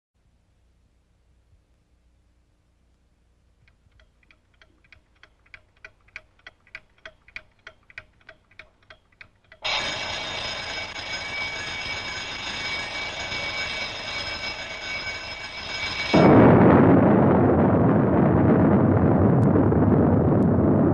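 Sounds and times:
alarm clock ticking: 0:03.6 - 0:16.2
hand hitting clock: 0:03.7 - 0:09.7
alarm clock ringing: 0:04.0 - 0:16.3
rushing noise: 0:15.5 - 0:20.9.

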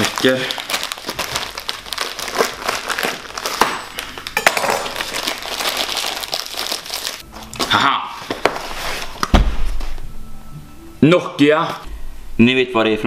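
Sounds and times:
parcel wrapping crinkling and tearing: 0:00.0 - 0:07.7.

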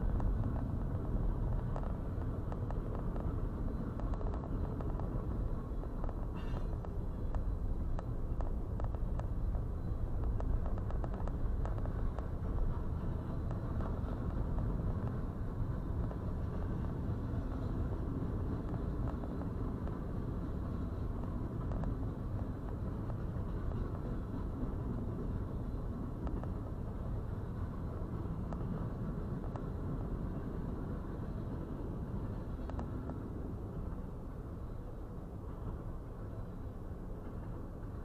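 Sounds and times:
train wheels rumbling on rails: 0:00.0 - 0:38.0.

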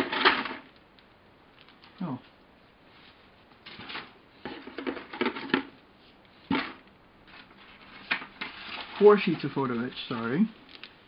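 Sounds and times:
plastic bags rustling and crinkling: 0:06.4 - 0:11.0.

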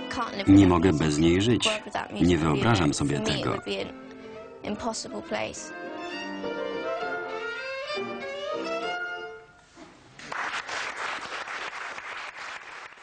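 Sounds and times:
solo violin melody: 0:05.7 - 0:09.6
audience applause: 0:10.2 - 0:13.0.

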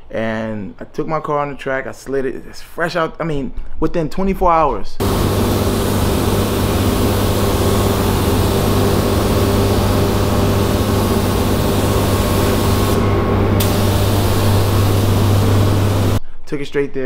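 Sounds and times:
paint spray gun hissing: 0:05.0 - 0:16.2
ventilation hum: 0:05.0 - 0:16.3.

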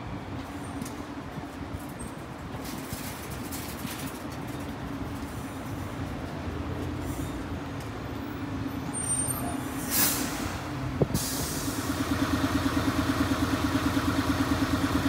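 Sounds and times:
bus engine idling: 0:05.2 - 0:15.0
air hiss: 0:09.8 - 0:12.0.

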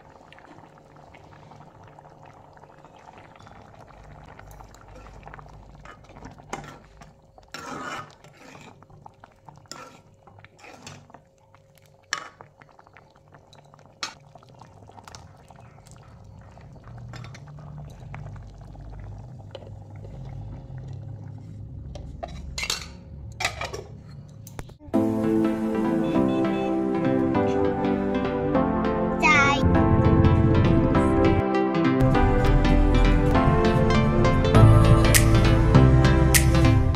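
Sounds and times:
curry bubbling: 0:00.0 - 0:24.8
ladle scraping metal pot: 0:04.5 - 0:11.3, 0:21.4 - 0:24.4.

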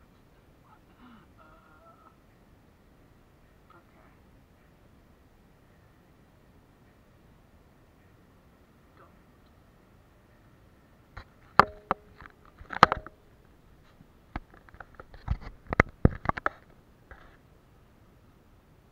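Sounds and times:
camera handling clicks and knocks: 0:11.5 - 0:13.2, 0:14.4 - 0:16.6.

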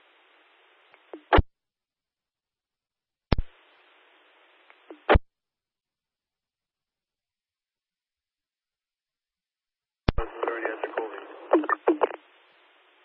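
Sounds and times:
radio static hiss: 0:00.0 - 0:01.4, 0:03.3 - 0:05.2, 0:10.1 - 0:13.0
radio squelch click: 0:10.1 - 0:12.2.

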